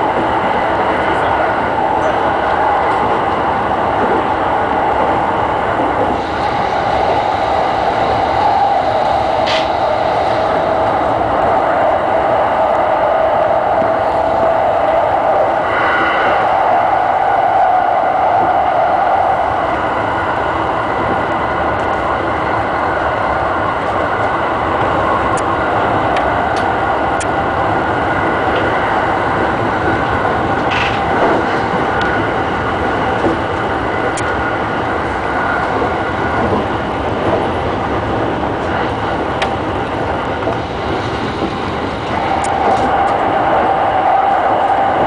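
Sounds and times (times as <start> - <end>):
electric train rumbling: 0.0 - 45.0
train whine: 0.0 - 45.0
wheels clicking on rails: 23.8 - 45.0.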